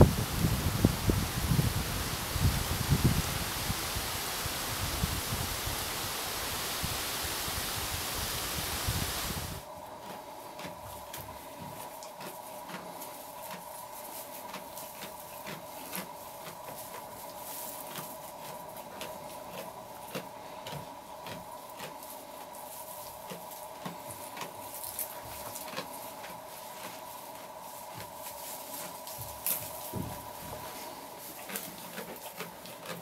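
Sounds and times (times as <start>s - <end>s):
animal crunching hay: 9.3s - 33.0s.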